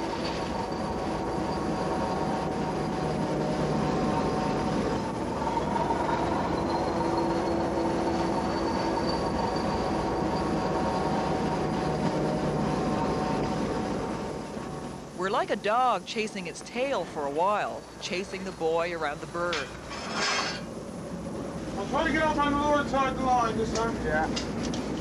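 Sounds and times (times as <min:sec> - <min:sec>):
boat engine droning: 0:00.0 - 0:25.0.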